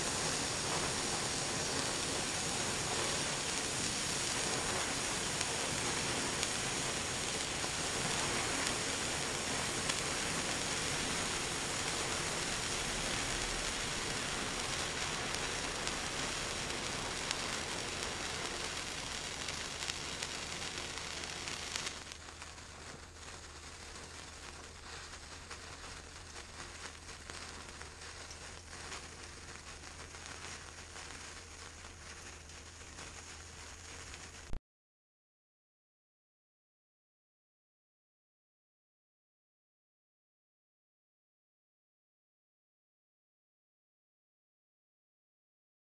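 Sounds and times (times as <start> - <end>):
fireworks fizzing and hissing: 0.0 - 34.6
sparks crackling and sputtering: 0.0 - 34.6.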